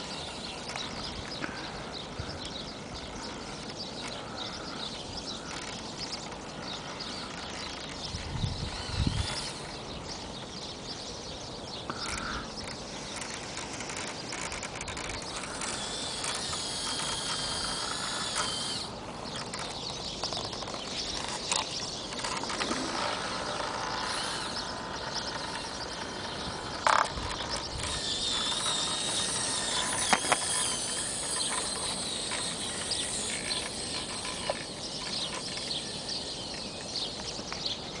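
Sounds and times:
small electric motor whining: 0.0s - 11.1s, 11.9s - 38.0s
sharp clicks: 11.9s - 37.7s.

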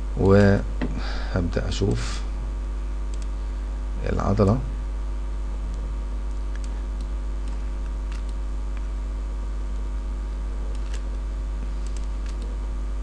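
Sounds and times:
low electrical hum: 0.0s - 13.0s
computer mouse clicks: 3.1s - 3.3s, 5.7s - 8.9s, 10.7s - 12.6s.

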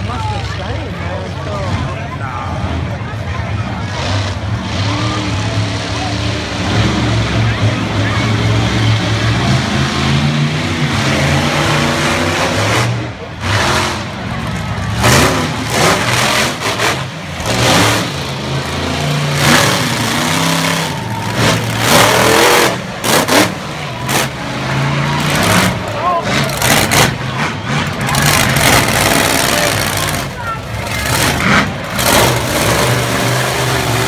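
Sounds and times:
monster truck engine revving: 0.0s - 34.0s.

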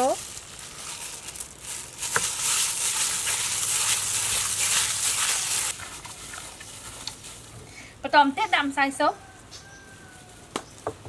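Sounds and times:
wet squishing of meat: 0.0s - 7.7s.

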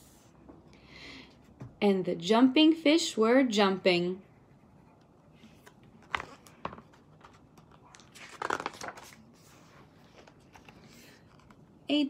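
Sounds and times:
paper pages rustling: 5.4s - 11.6s.

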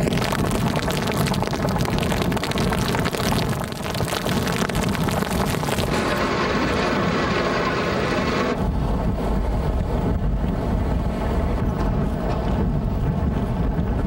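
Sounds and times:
driving rain: 0.0s - 14.0s
wind hitting microphone: 0.0s - 14.0s
heavy surf breaking: 5.8s - 8.6s.

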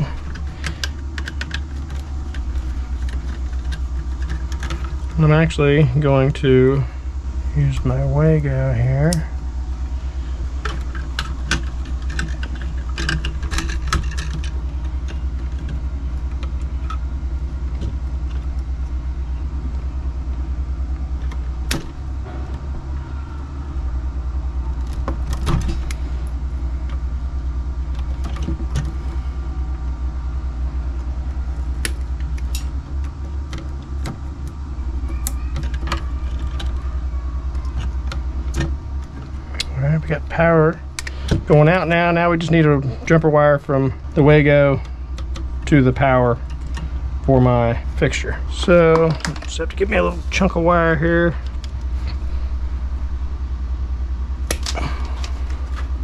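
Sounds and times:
wire stripper stripping insulation: 0.0s - 5.4s, 54.4s - 56.0s
steady low rumble: 0.0s - 56.0s
clicks and rattles of hand tools: 0.1s - 5.0s, 10.6s - 17.0s.

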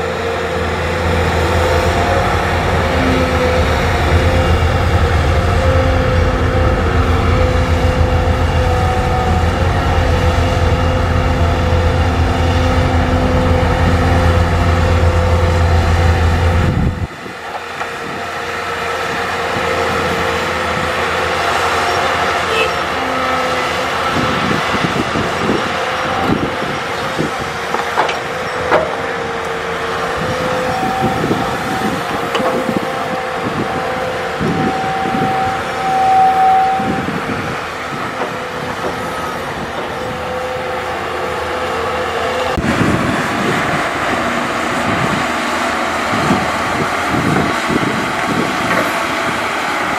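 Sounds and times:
excavator engine drone: 0.0s - 49.9s
heavy low rumble: 0.6s - 17.4s, 36.8s - 49.4s.

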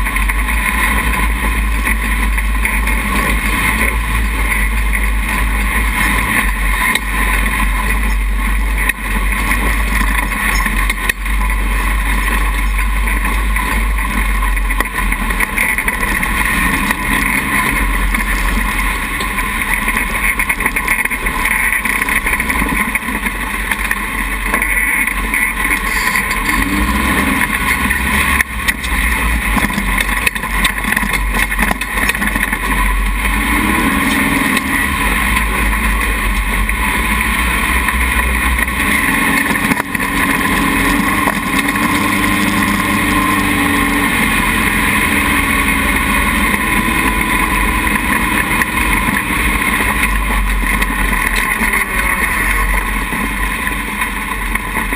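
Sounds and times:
buggy engine running: 0.0s - 54.9s.

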